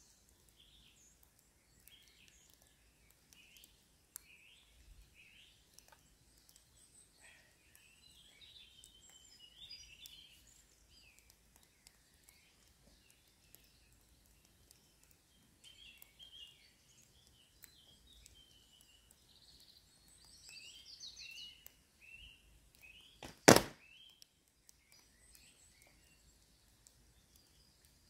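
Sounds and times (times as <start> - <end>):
wild birds singing: 0.0 - 28.0
longbow shot thud: 23.2 - 23.8.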